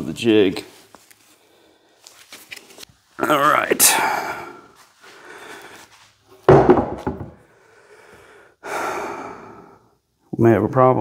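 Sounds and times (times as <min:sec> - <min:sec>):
wooden knocks: 0:06.5 - 0:07.4
wooden slab thunk: 0:06.5 - 0:07.4.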